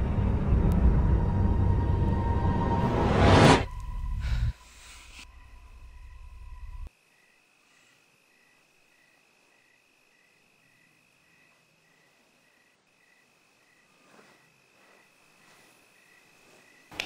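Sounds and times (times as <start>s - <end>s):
dark film score swell: 0.0s - 6.9s
crickets chirping: 3.7s - 17.0s.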